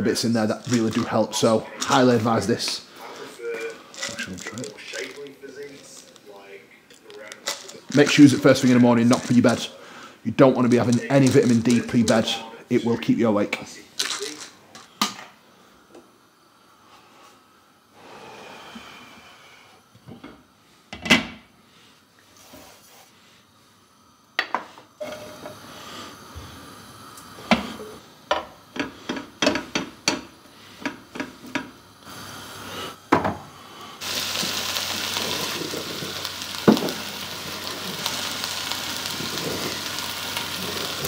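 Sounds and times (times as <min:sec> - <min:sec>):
food sizzling in a frying pan: 0:00.0 - 0:06.2, 0:07.0 - 0:09.7, 0:10.6 - 0:12.4, 0:34.0 - 0:41.0.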